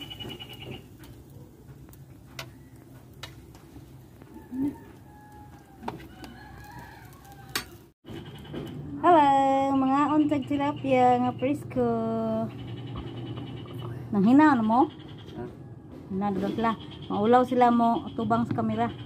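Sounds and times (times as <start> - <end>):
rooster crowing: 4.2 - 7.9.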